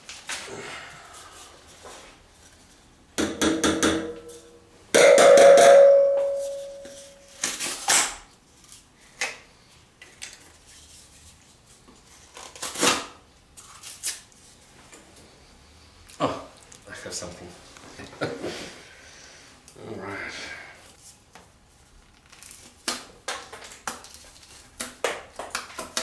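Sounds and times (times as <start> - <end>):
metallic clink ringing: 5.0 - 7.3.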